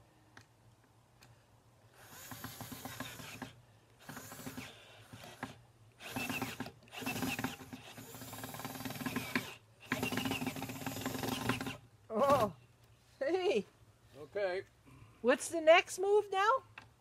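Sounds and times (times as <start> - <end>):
cordless drill driving screw: 2.0 - 12.5.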